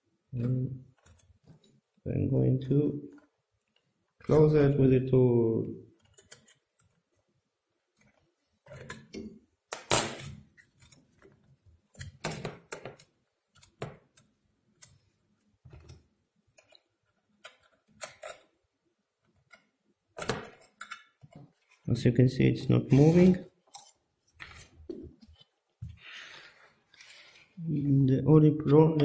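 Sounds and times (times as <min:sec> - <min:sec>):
small metal clicks and scrapes: 0:06.0 - 0:07.0.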